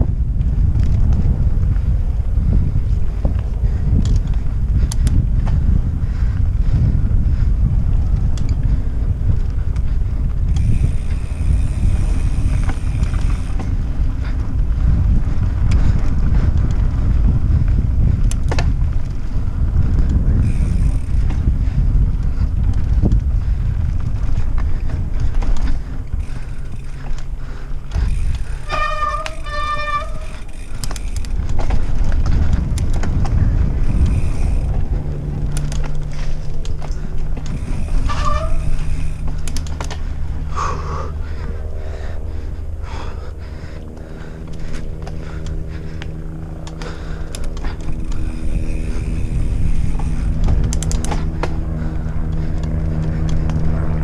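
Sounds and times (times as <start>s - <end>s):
mountain bike rumble and rattle: 0.0s - 54.0s
wind buffeting microphone: 0.0s - 54.0s
high squeal: 28.7s - 30.5s.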